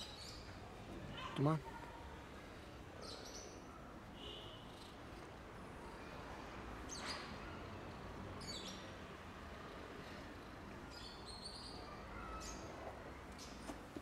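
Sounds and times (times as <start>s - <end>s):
low steady background noise: 0.0s - 14.0s
faint high-pitched bird chirps: 10.9s - 12.8s.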